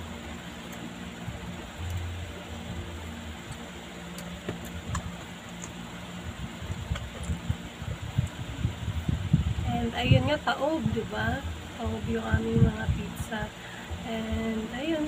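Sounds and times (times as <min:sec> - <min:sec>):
steady low hum: 0:00.0 - 0:15.0
soft low thumps: 0:06.3 - 0:13.1.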